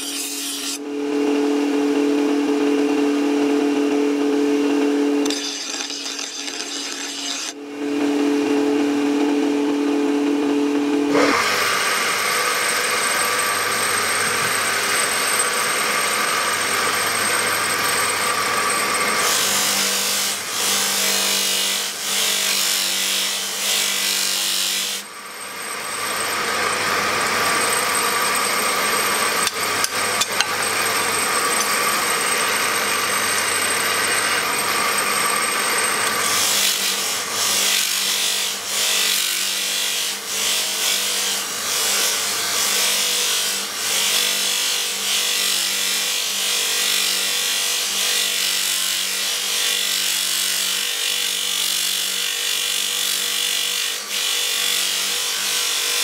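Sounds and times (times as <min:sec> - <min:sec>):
knife grinding on grinding wheel: 0:00.0 - 0:00.8, 0:05.2 - 0:07.6, 0:11.1 - 0:56.0.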